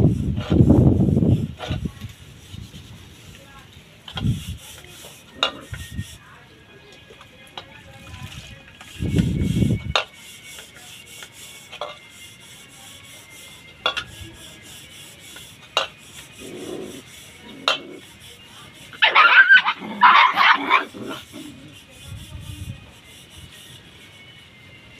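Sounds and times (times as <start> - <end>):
puppies yelping and squealing: 18.9 - 21.8.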